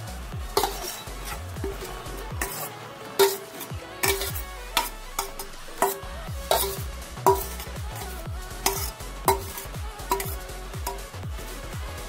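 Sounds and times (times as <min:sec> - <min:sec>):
electronic music with beat: 0:00.0 - 0:12.0
metal spoon scraping steel bowl: 0:00.6 - 0:11.1.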